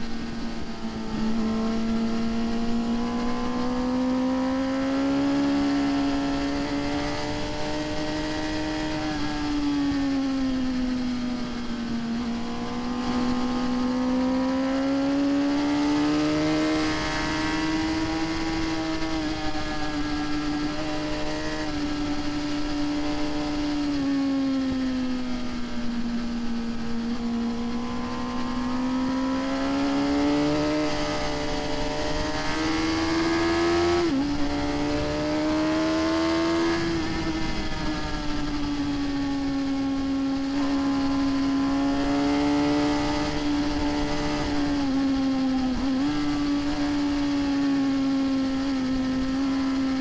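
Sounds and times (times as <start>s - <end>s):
motorcycle engine revving: 0.0s - 50.0s
wind rushing: 30.9s - 44.9s.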